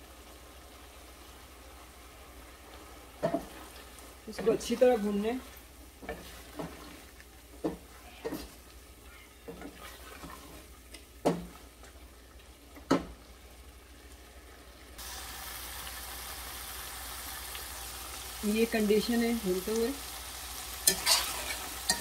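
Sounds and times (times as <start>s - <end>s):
food sizzling: 0.0s - 22.0s
wooden spoon scraping a pot: 3.2s - 12.1s, 20.8s - 22.0s.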